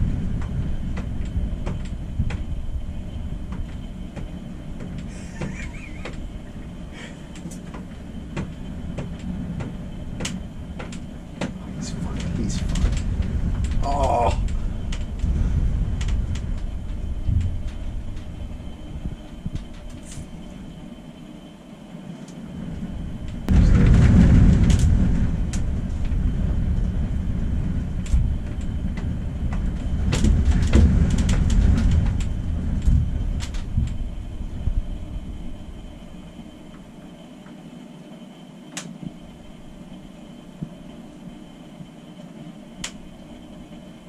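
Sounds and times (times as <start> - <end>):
gusting wind buffeting: 0.0 - 44.0
faint clicks: 42.8 - 43.0.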